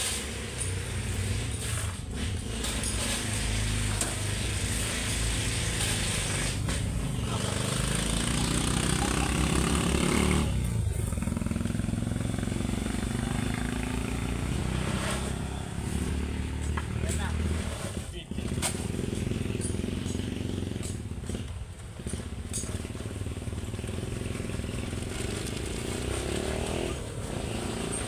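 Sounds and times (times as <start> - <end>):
shovel scraping gravel: 0.0 - 7.7
vehicle engine revving: 0.0 - 28.0.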